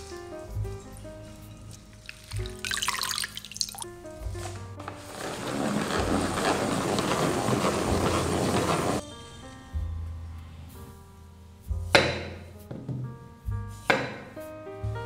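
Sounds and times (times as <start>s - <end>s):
background music: 0.0s - 15.0s
herbs splashing in water: 1.8s - 3.9s
salad spinner whirring: 5.1s - 9.0s.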